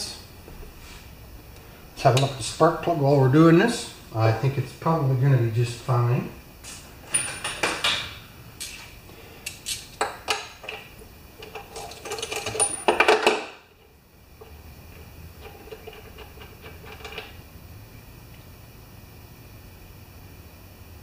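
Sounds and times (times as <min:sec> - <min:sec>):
metal tools clinking: 0:07.1 - 0:08.1, 0:10.3 - 0:13.4, 0:15.4 - 0:17.3.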